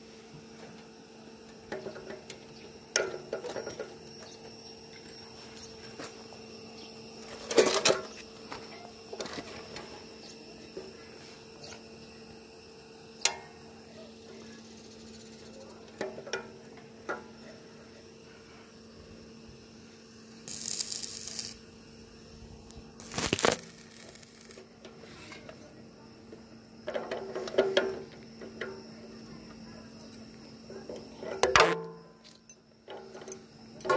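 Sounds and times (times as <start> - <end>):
faint steady hum: 0.0 - 33.9.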